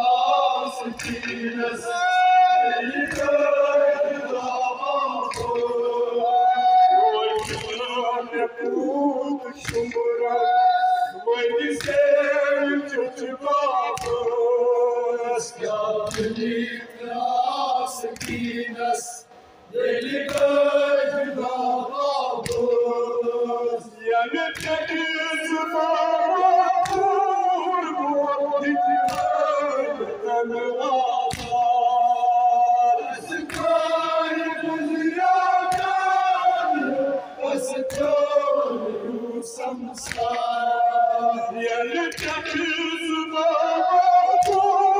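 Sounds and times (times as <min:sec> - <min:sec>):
lead singer on microphone: 0:00.0 - 0:44.9
men singing a mourning chant: 0:00.0 - 0:44.9
chest-beating slaps: 0:00.9 - 0:01.5, 0:05.2 - 0:05.8, 0:07.4 - 0:08.0, 0:09.6 - 0:10.0, 0:11.8 - 0:12.1, 0:14.0 - 0:14.3, 0:16.0 - 0:16.5, 0:18.2 - 0:18.6, 0:20.1 - 0:20.6, 0:22.4 - 0:22.8, 0:26.8 - 0:27.1, 0:31.3 - 0:31.7, 0:33.5 - 0:33.8, 0:40.0 - 0:40.6, 0:42.1 - 0:42.6, 0:44.4 - 0:44.7.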